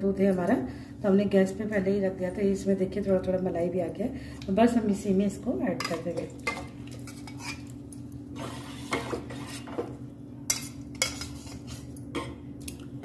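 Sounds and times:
spoon stirring in pot: 5.8 - 12.5.

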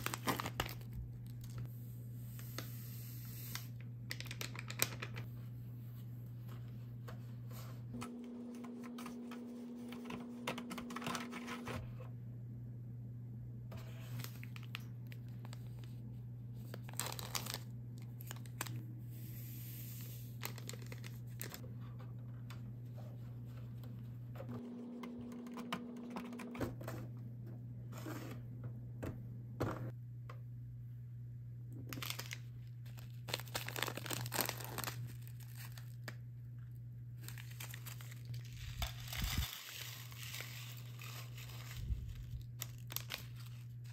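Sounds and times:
foil packet crinkling: 0.0 - 1.7, 14.0 - 16.0, 16.6 - 18.8, 20.3 - 21.6, 31.9 - 36.2, 37.2 - 43.9.

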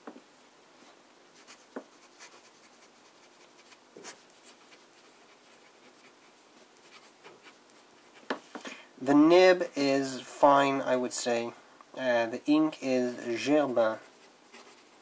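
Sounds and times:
fountain pen nib scratching paper: 14.0 - 15.0.

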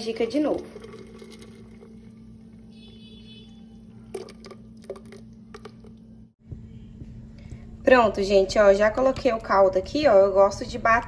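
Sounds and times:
broth pouring into pot: 0.0 - 3.0, 3.9 - 6.0
steady low hum: 0.0 - 11.0.

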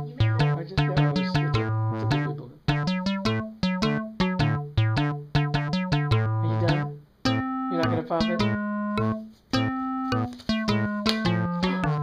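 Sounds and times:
bouncy synthesizer and electric piano music: 0.0 - 12.0.

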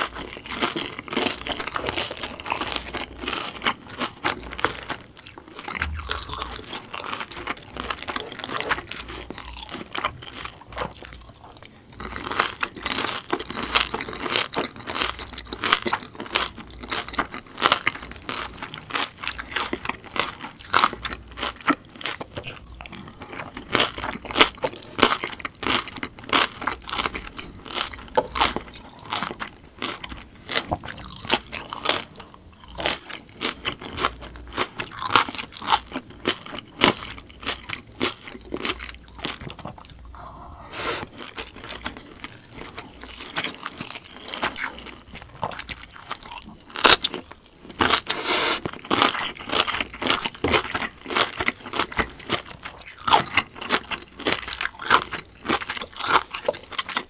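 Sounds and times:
person chewing crunchy food: 0.0 - 57.0.

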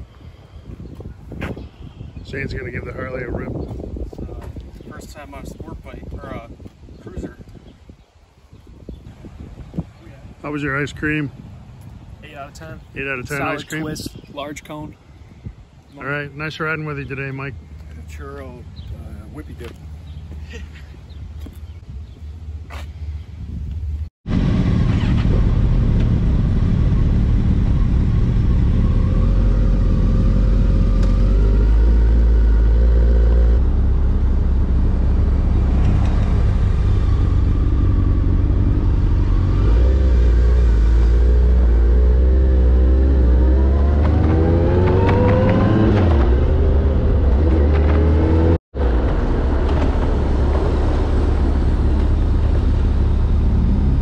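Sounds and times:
motorcycles low rumble: 0.0 - 54.0
motorcycle engine revving: 24.3 - 54.0.

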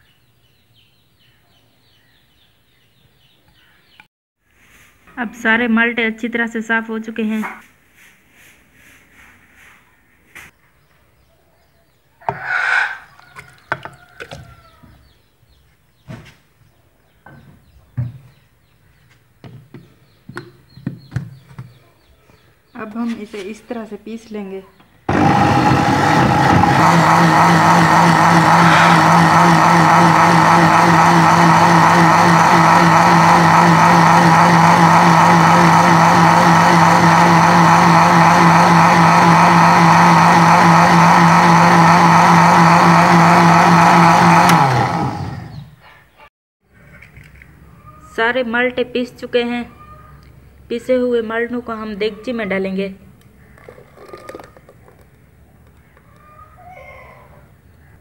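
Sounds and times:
electric blender running: 25.1 - 45.7
blender switch click: 44.4 - 44.7.

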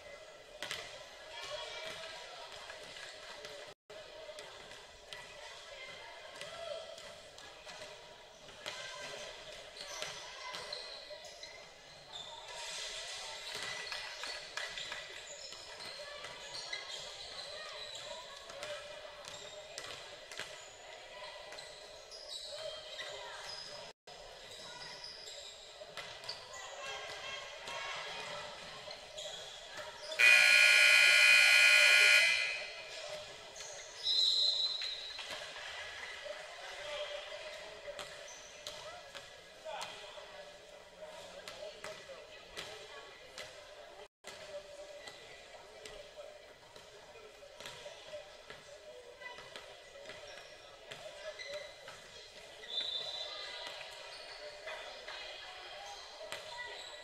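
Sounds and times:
sneaker squeaks: 9.1 - 18.6, 19.2 - 26.8, 28.9 - 35.4, 38.0 - 38.8, 50.1 - 54.7, 55.9 - 57.0
scoreboard buzzer blast: 30.2 - 32.9.

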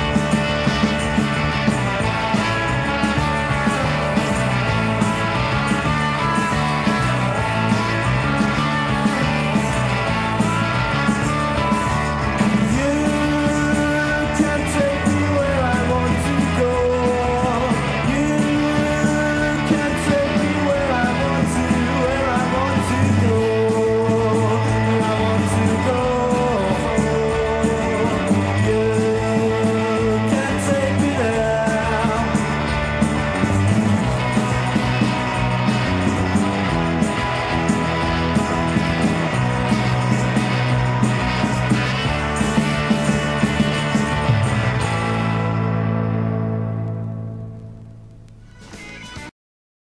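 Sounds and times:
rock song with guitar and singing: 0.0 - 49.3.

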